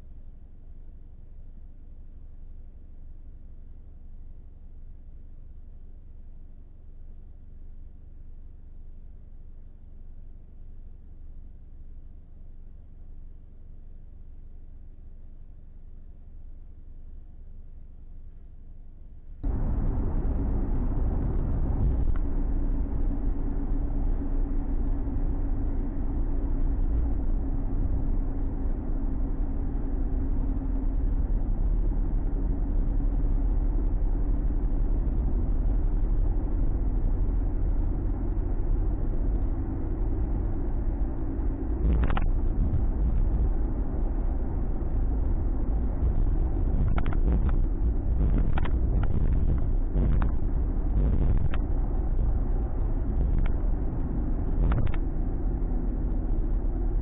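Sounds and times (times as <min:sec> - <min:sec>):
engine and road noise drone: 0:19.1 - 0:57.0.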